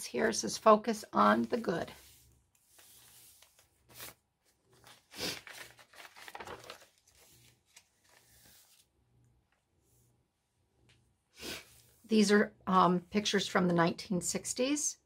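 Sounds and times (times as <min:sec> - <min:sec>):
paper rustling and crinkling: 0:01.3 - 0:08.9.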